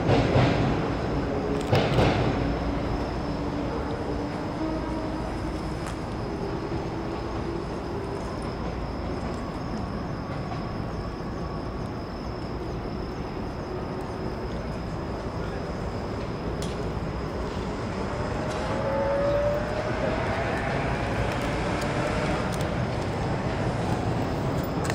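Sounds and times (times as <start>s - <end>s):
distant city traffic: 0.0s - 24.9s
rising tone from passing vehicle: 18.0s - 22.7s.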